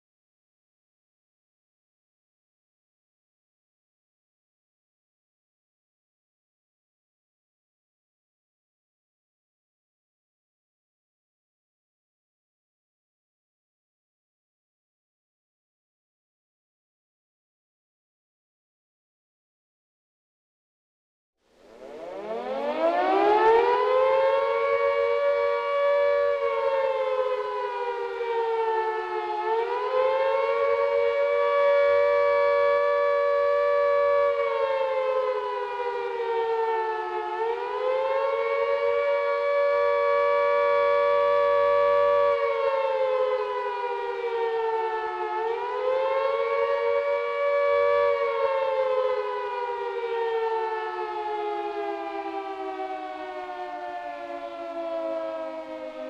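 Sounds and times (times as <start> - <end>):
air-raid siren wailing: 21.5 - 56.0.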